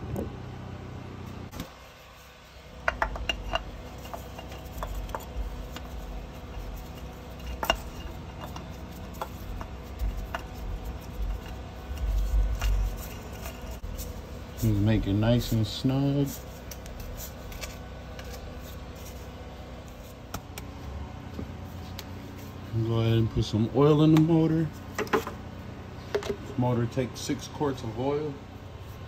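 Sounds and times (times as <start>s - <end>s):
small metallic clicks and scrapes: 2.9s - 14.0s.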